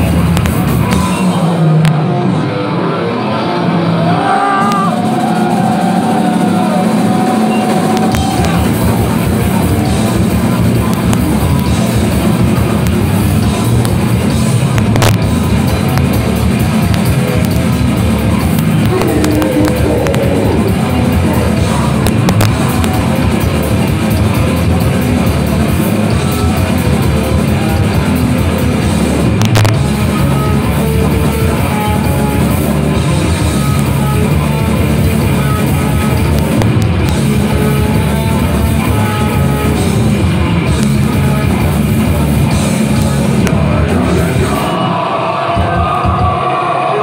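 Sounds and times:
drum kit: 0.0s - 2.0s, 4.1s - 46.5s
distorted electric guitars: 0.0s - 47.0s
vocals into microphone: 18.8s - 22.9s, 42.9s - 47.0s.

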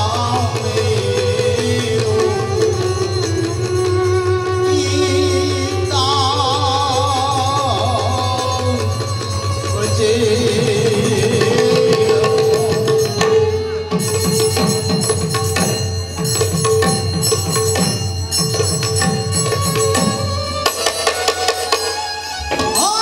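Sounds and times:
held melodic note: 9.6s - 23.0s
barrel drum played by hand: 11.1s - 23.0s.

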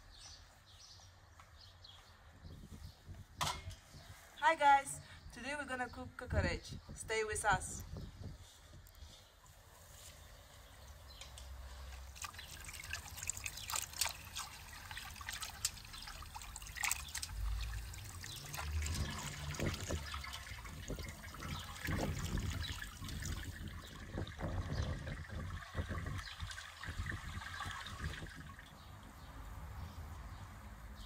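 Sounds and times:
water trickling and splashing: 9.4s - 31.0s.

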